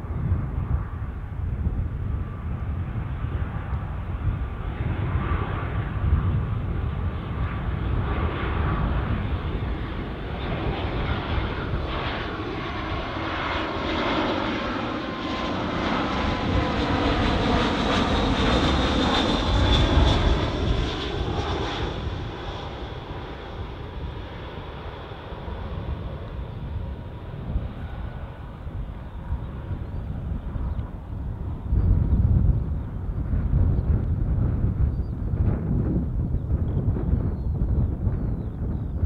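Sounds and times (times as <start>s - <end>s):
jet airliner roar overhead: 0.0s - 39.0s.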